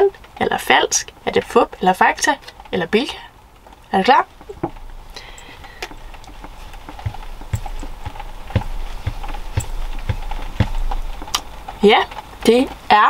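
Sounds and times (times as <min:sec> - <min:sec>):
faint steady hum: 0:00.0 - 0:13.0
soft knocks: 0:05.8 - 0:11.4.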